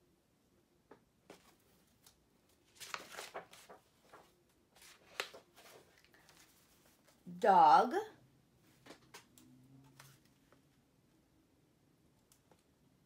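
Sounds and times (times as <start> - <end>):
book pages turning: 1.3 - 7.2, 8.8 - 10.6.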